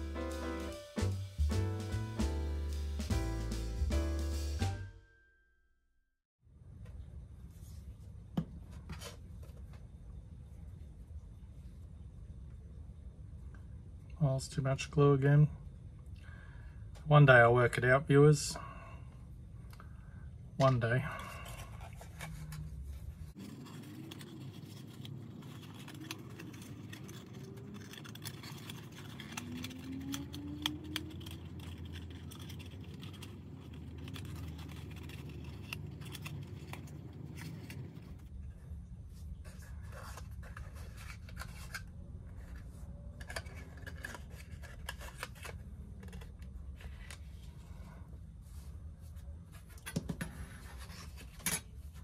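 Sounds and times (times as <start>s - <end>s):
light scrapes and rubs: 21.2s - 29.7s.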